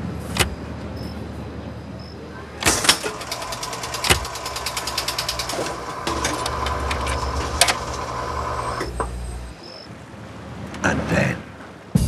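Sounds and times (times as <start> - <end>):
selector rapid clicking: 2.6 - 8.9
record clacking onto turntable: 2.6 - 9.2
jukebox motor humming: 2.6 - 9.6.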